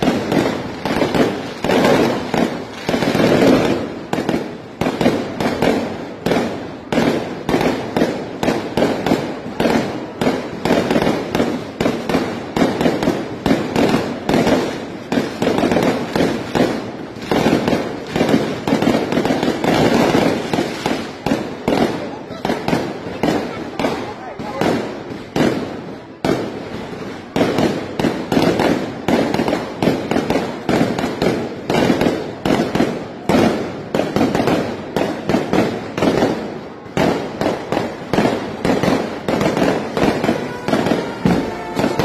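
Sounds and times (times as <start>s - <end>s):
fireworks bangs and crackles: 0.0s - 42.0s.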